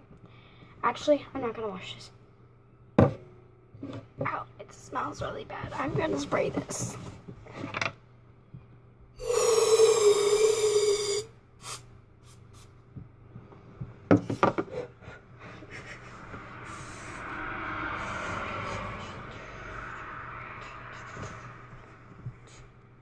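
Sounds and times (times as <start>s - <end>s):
aerosol can spraying: 10.4s - 12.7s.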